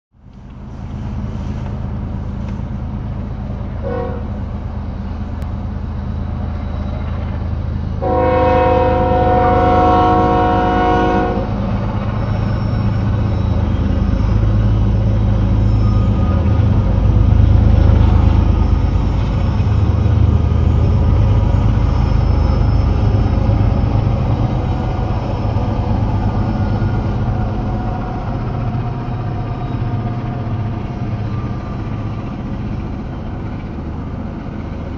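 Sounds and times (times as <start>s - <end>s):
rumble of passing train: 0.1s - 34.9s
locomotive horn blast: 3.8s - 4.4s, 8.0s - 11.7s.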